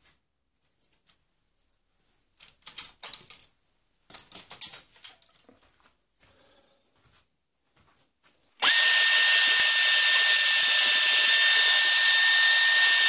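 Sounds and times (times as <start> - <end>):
hand tools clicking and rattling: 4.1 - 5.6.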